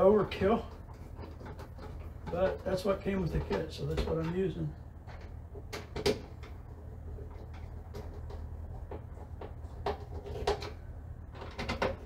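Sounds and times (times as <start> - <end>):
steady low hum: 0.0 - 12.0
plastic clicks and knocks: 5.1 - 6.6, 7.3 - 12.0.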